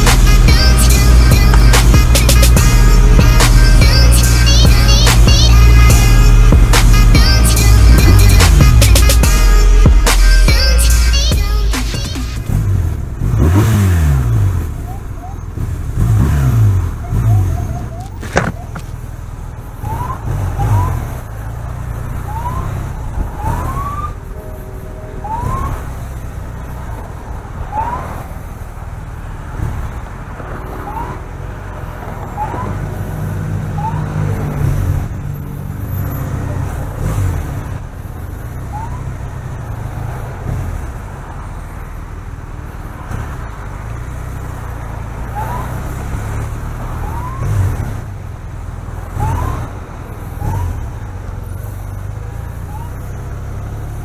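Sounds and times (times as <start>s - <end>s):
siren chirps: 19.7s - 28.4s, 30.6s - 33.0s, 33.7s - 34.4s, 38.2s - 40.2s, 45.3s - 46.0s, 46.8s - 48.0s, 49.0s - 53.9s.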